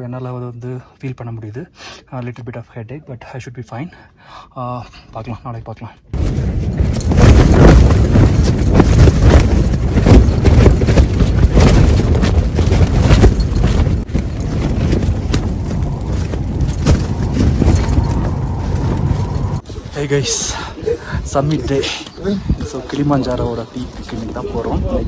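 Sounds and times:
low wind rumble: 6.1s - 25.0s
tent fabric flapping in wind: 6.2s - 20.3s.

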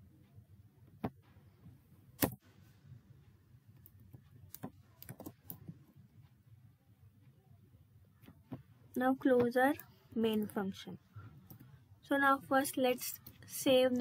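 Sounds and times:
keyboard key presses: 3.8s - 5.8s.

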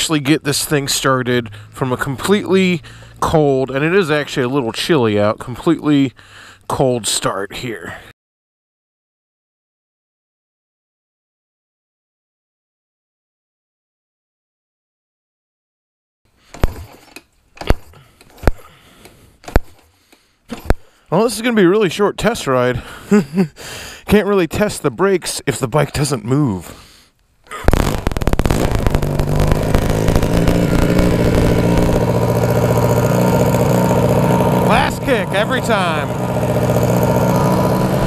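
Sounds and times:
motorcycle engine starting and running: 0.4s - 4.8s, 16.5s - 18.7s, 27.7s - 38.0s
sharp electrical pop: 27.6s - 32.3s.

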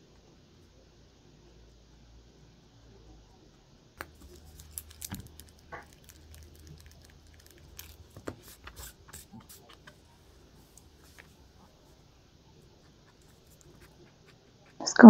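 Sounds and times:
eraser rubbing on paper: 8.2s - 10.1s, 12.7s - 14.9s.

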